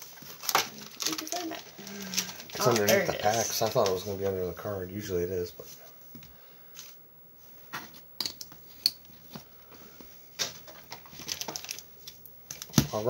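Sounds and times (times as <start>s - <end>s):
foil packs rustling: 0.0s - 4.4s, 10.4s - 13.0s.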